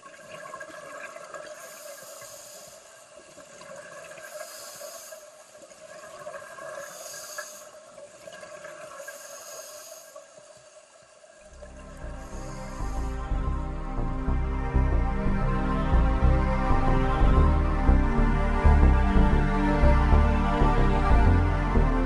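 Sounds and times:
steady underwater noise: 0.0s - 22.0s
scuba regulator air hiss: 1.5s - 3.1s, 4.2s - 5.5s, 6.8s - 7.9s, 9.0s - 10.4s, 12.1s - 13.3s.

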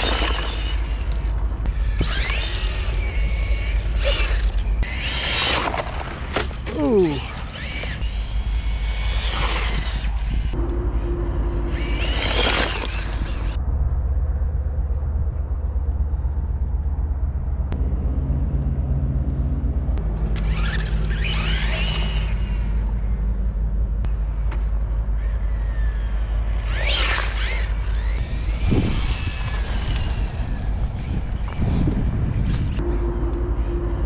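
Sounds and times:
rc car motor whining: 0.0s - 10.7s, 11.6s - 13.6s, 20.4s - 23.2s, 25.2s - 33.1s
low rumble: 0.0s - 34.0s.

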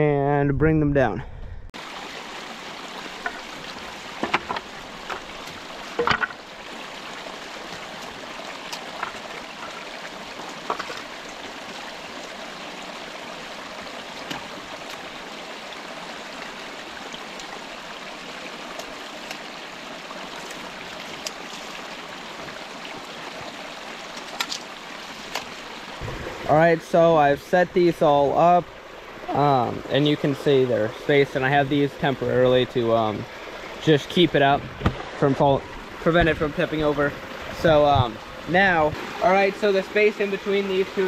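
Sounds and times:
stream splashing over stones: 1.8s - 41.0s
boards knocking: 4.2s - 5.2s, 6.0s - 6.4s.

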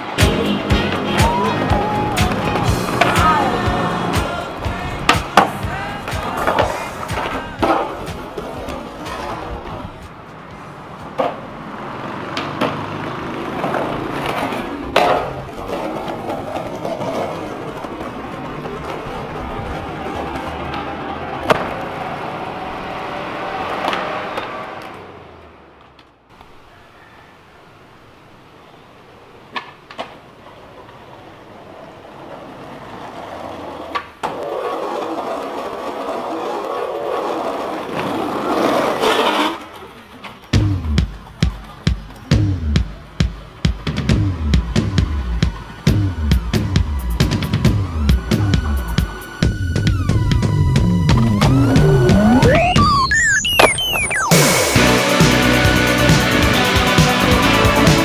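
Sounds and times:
skateboard clacks: 0.0s - 22.4s, 29.4s - 52.4s
skateboard wheels rolling on paving: 0.0s - 52.9s.

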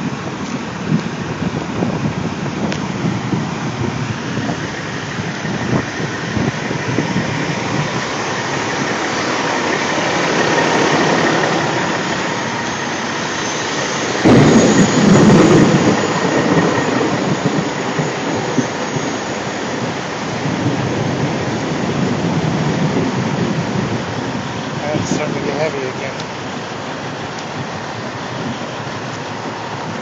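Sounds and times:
heavy rain falling: 0.0s - 30.0s
thunder crack and rumble: 0.0s - 30.0s.

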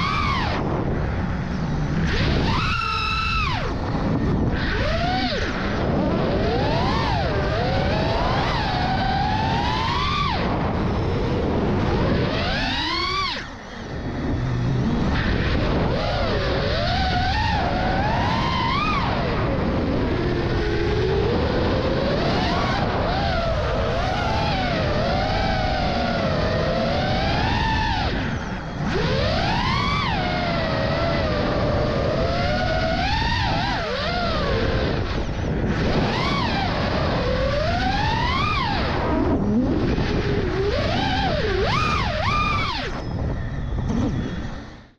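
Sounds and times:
rush of air: 0.0s - 18.4s
drone motors whining: 0.0s - 44.9s
wind noise: 0.0s - 44.9s.

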